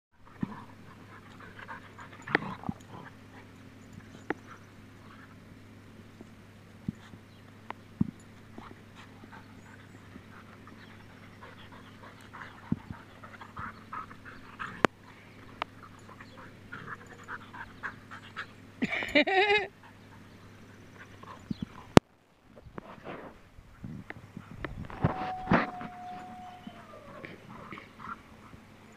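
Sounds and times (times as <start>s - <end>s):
dogs panting: 0.2s - 5.5s, 8.2s - 22.0s, 27.1s - 28.9s
dog whine-growl: 24.9s - 28.0s.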